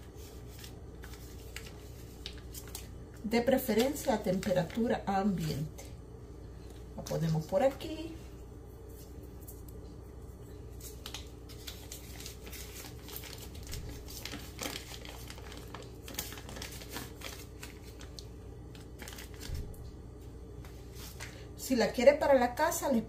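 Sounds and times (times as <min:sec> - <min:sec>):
paper wrapper crinkling: 0:00.0 - 0:05.8, 0:10.6 - 0:19.9, 0:20.6 - 0:21.5.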